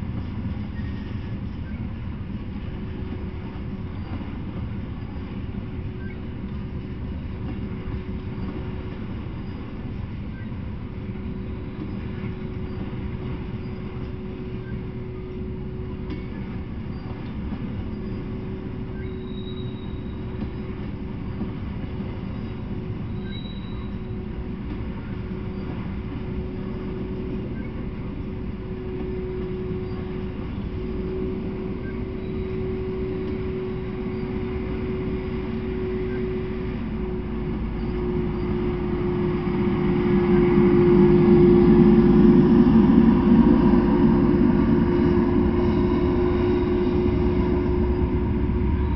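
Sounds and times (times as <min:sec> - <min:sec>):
thin steady whining tone: 0:00.0 - 0:48.9
train wheels rumbling on rails: 0:00.0 - 0:48.9
road vehicle passing close: 0:38.1 - 0:48.9.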